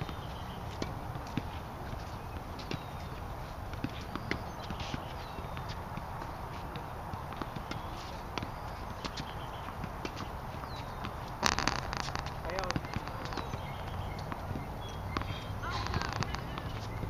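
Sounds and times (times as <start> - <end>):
tennis balls bouncing: 0.0 - 17.0
rackets striking balls: 3.8 - 16.9.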